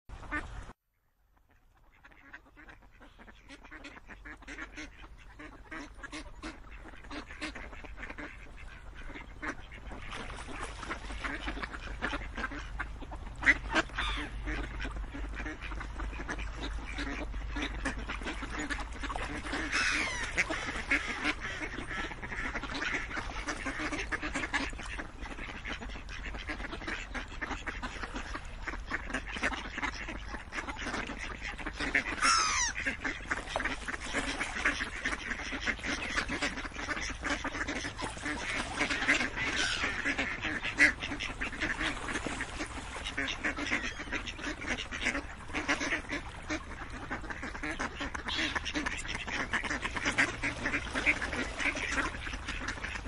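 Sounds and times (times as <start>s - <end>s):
ducks quacking: 0.2s - 0.6s, 1.4s - 53.0s.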